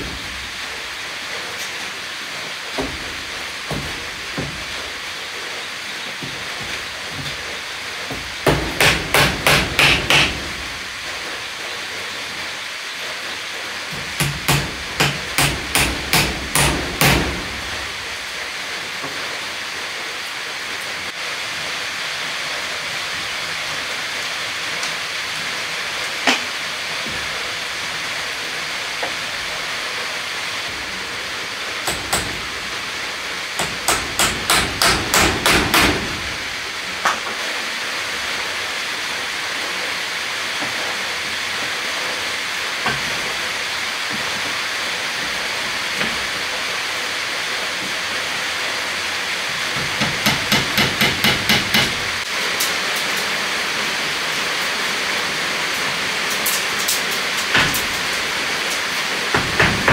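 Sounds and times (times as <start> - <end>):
hammer driving nails into wood: 8.1 - 10.5, 14.2 - 17.4, 31.8 - 32.5, 33.6 - 36.2, 49.8 - 52.0, 59.3 - 59.9.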